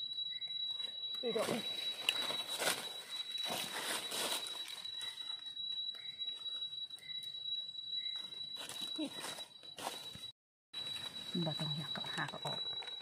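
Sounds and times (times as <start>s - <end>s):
steady high-pitched tone: 0.0s - 13.0s
footsteps in dry leaves: 1.3s - 5.4s, 8.6s - 11.5s.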